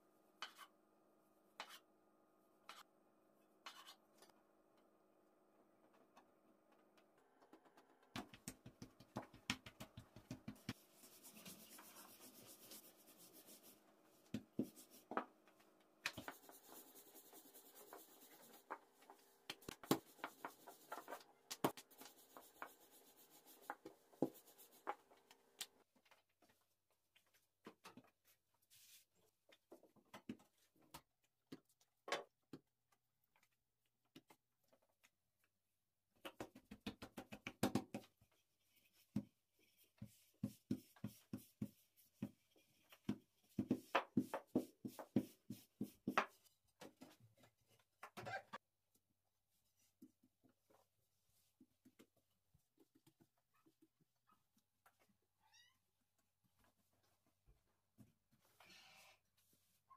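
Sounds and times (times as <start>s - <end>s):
rolling pin on dough: 36.3s - 47.2s.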